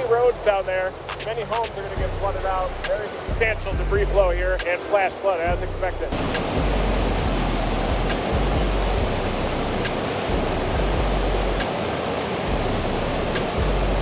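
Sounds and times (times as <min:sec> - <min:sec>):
muddy flood water rushing: 0:00.0 - 0:05.1, 0:06.0 - 0:14.0
low rumble: 0:06.0 - 0:11.6.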